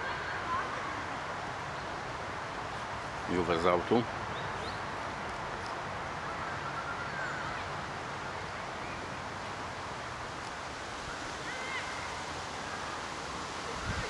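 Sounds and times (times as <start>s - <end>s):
faint distant calls: 0.0s - 14.0s
wind on microphone: 13.6s - 14.0s.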